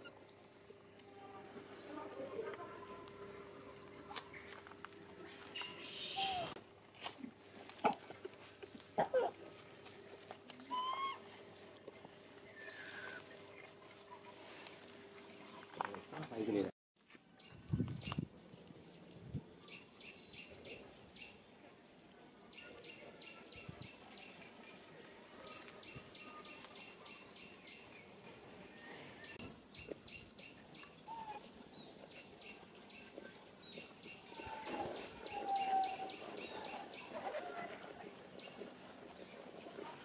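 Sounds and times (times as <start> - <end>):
low whistled bird calls: 10.7 - 11.2.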